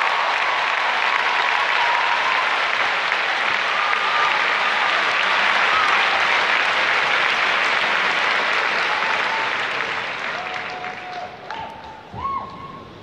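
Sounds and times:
arena crowd applauding: 0.0 - 13.0
high cheers: 0.0 - 13.0.

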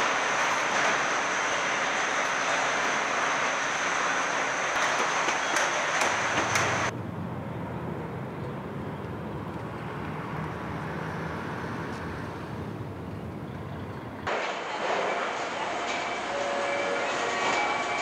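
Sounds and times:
busy factory floor noise: 0.0 - 7.0, 11.6 - 18.0
muffled outdoor hum: 0.0 - 17.8.

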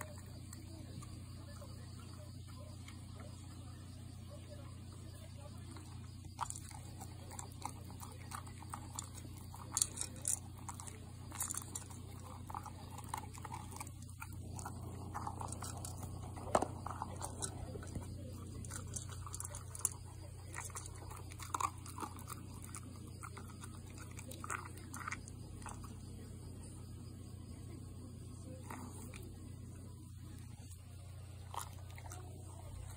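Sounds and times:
dog crunching dry kibble: 5.6 - 26.6, 28.5 - 29.5, 30.2 - 32.9.

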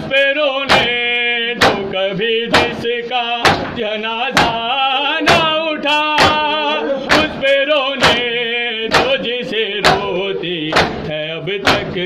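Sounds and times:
man chanting a lament: 0.0 - 12.0
hands striking chest: 3.4 - 3.8, 8.9 - 9.2, 10.7 - 11.1.

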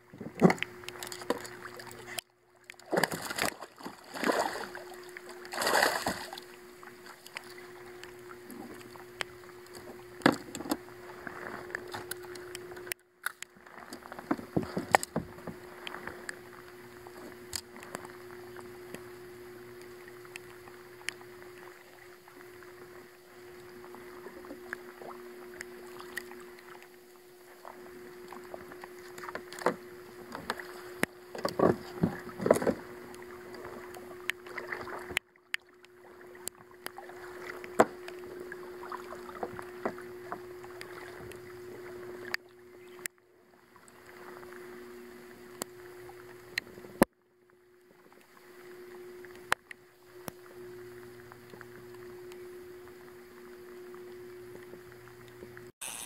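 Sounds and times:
paddling water sounds: 0.0 - 55.7
steady hum: 0.0 - 56.0
kayak hull knocks and clicks: 9.8 - 10.8, 11.8 - 16.0, 29.2 - 32.8.

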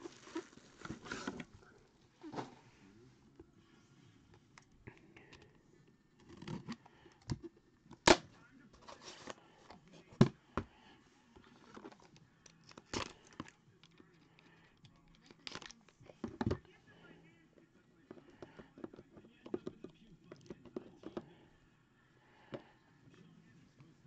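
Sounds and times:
card pack rustling: 0.0 - 1.5.

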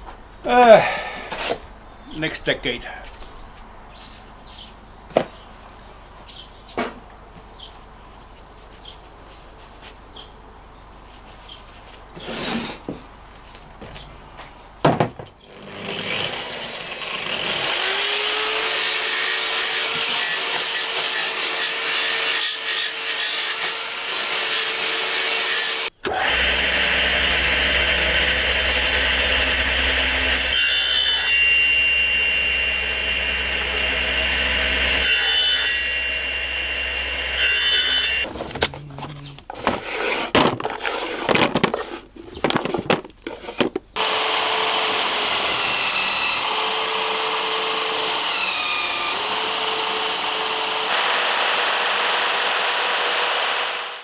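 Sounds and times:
angle grinder grinding wood: 15.5 - 38.3, 44.0 - 54.0
table saw running: 15.6 - 38.3, 44.0 - 54.0
branch cut by saw blade: 26.0 - 38.3, 44.0 - 54.0.

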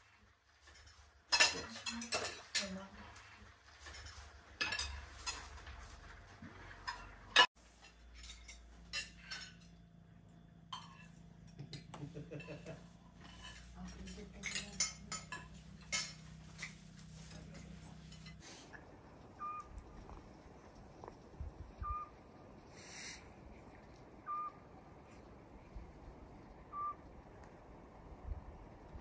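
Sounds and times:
cutlery clinking against plates: 0.6 - 2.9, 3.8 - 5.6, 6.9 - 9.8, 10.8 - 18.5.

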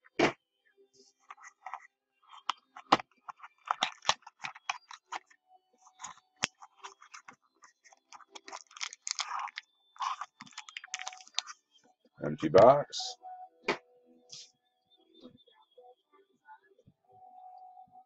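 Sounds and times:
cardboard box crackling and rustling: 8.0 - 11.4.

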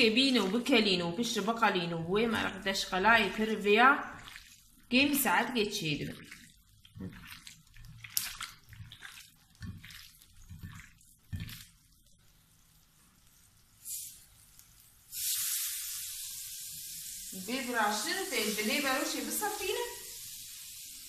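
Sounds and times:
wet squelching of raw chicken: 2.3 - 12.3
meat sizzling on grill pan: 12.4 - 21.0.

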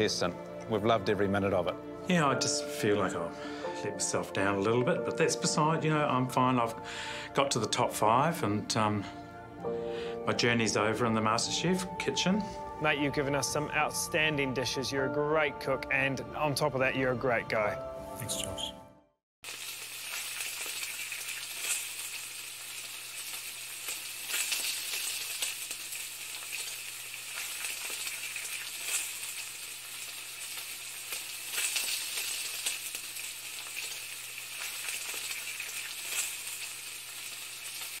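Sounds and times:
sizzling hiss with crackles: 19.4 - 38.0.

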